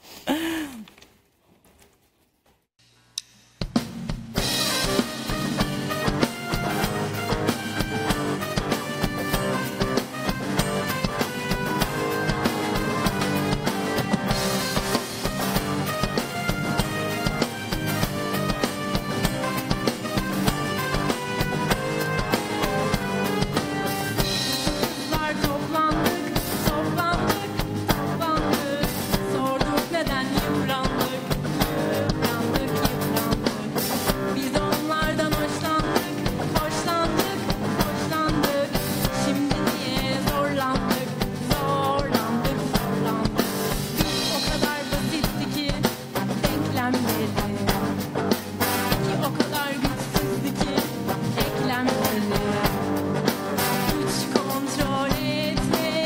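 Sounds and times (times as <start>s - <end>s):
drum kit: 2.8s - 56.0s
electric guitar: 4.4s - 56.0s
woman singing: 20.9s - 48.0s, 48.8s - 52.9s, 53.6s - 56.0s.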